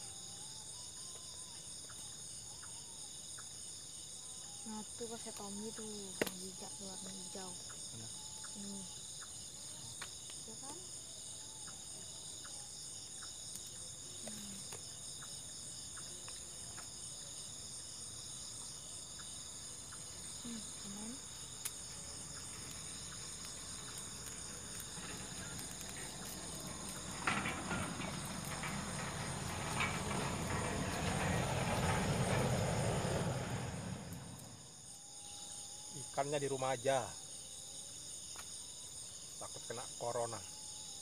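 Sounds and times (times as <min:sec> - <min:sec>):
crickets trilling: 0:00.0 - 0:41.0
rushing noise with knocks: 0:24.9 - 0:34.4.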